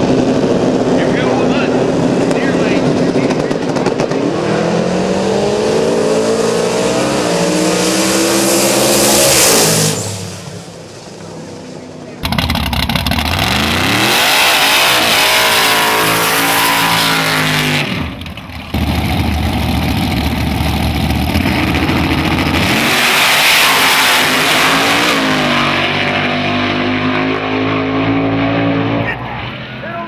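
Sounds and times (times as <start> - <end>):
race truck engine revving: 0.0 - 29.9
race engines accelerating: 0.0 - 30.0
heavy engine rumble: 10.2 - 14.0, 17.3 - 22.8.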